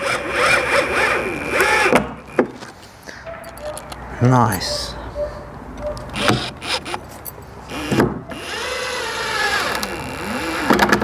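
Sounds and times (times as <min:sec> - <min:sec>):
impact driver driving screws: 0:06.1 - 0:07.0.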